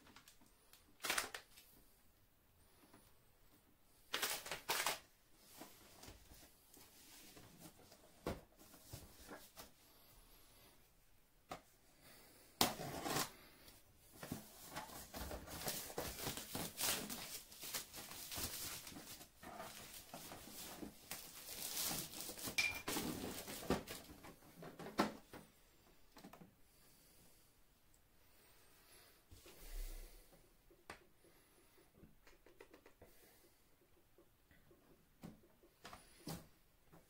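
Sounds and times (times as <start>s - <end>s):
plastic film crinkling: 0.1s - 1.6s, 4.1s - 5.1s, 14.6s - 24.1s
plastic film snapping: 1.0s - 1.6s, 4.1s - 5.0s.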